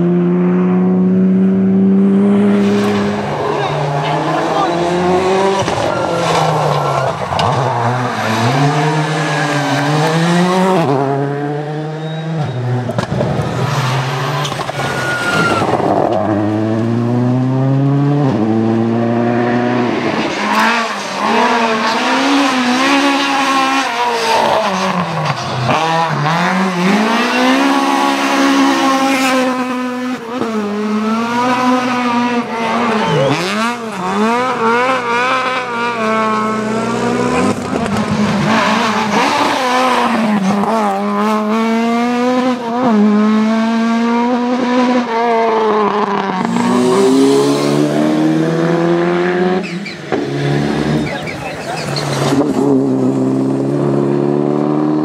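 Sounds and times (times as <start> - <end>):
rally car engines revving: 0.0 - 55.0
tyre squeal: 11.9 - 12.8, 13.7 - 15.9, 49.6 - 50.1, 50.9 - 52.4.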